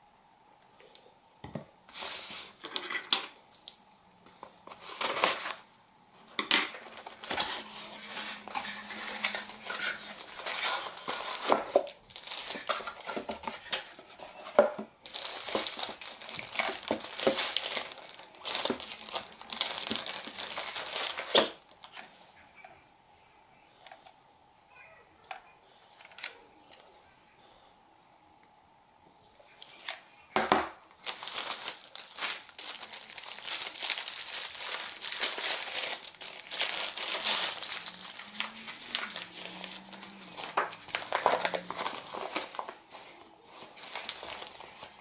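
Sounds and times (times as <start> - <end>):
plastic packaging crinkling: 4.6 - 5.7, 6.7 - 22.1, 30.9 - 45.0.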